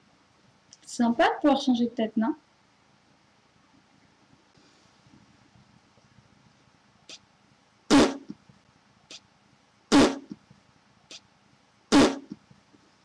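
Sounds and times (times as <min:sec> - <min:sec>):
woman blowing raspberry: 0:09.9 - 0:10.4, 0:11.9 - 0:12.4.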